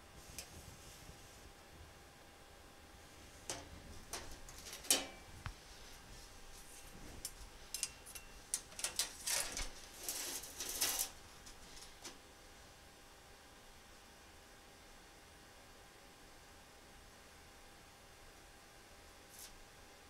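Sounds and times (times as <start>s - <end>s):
steel sheet handled on table: 3.4s - 5.3s, 6.7s - 12.1s
short scraping and clicking: 7.2s - 12.2s.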